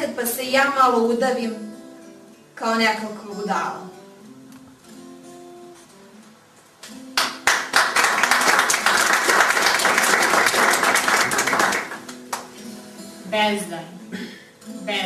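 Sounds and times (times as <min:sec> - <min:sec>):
small audience applauding: 0:06.8 - 0:12.8.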